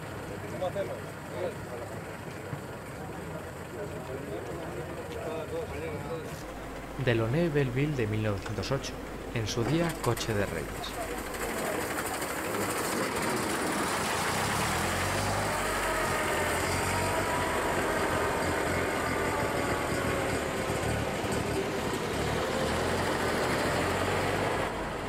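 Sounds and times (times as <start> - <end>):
old car engines running: 0.0 - 25.0.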